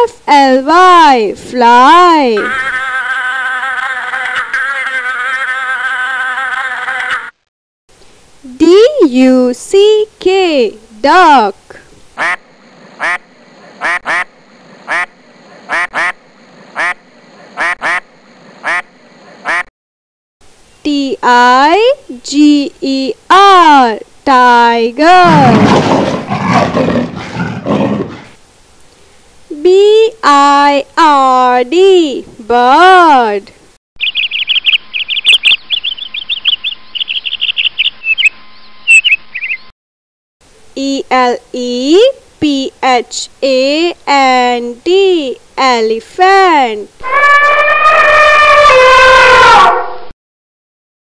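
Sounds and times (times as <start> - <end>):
duck quacking: 2.4 - 7.4, 12.2 - 19.7
bird chirping: 34.0 - 39.7.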